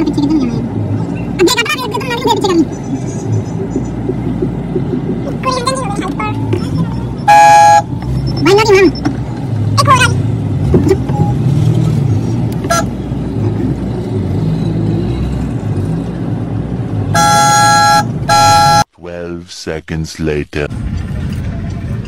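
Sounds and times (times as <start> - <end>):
car engine and road rumble: 0.0 - 22.0
car horn blasts: 7.2 - 7.9, 12.6 - 13.0, 17.1 - 18.9.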